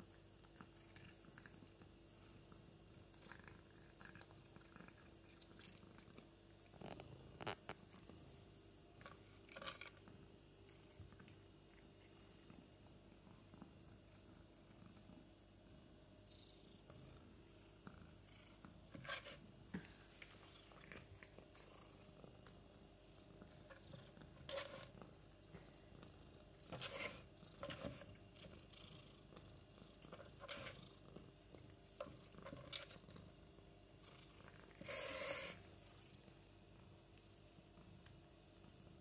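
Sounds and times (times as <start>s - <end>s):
kitten purring: 0.0s - 39.0s.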